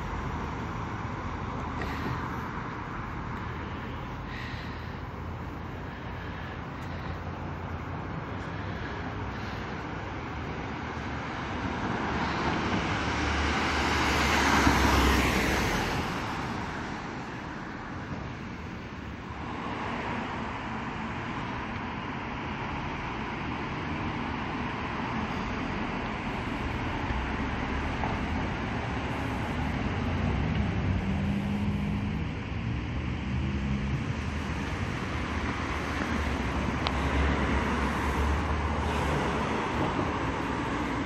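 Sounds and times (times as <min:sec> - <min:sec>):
steady road traffic noise: 0:00.0 - 0:41.0
vehicle passing close by: 0:11.7 - 0:17.1, 0:26.8 - 0:41.0.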